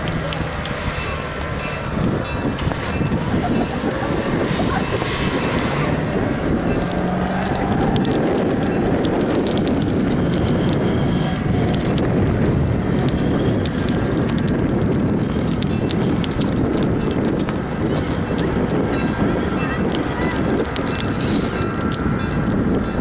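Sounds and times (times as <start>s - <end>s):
tyres spinning in gravel: 0.0s - 23.0s
stones clicking: 5.5s - 22.6s.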